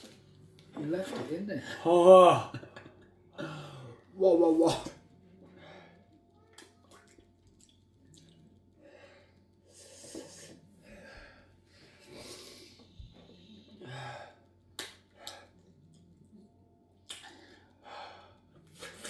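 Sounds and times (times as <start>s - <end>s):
men breathing with gasps and sighs: 3.4s - 4.0s, 8.8s - 14.5s.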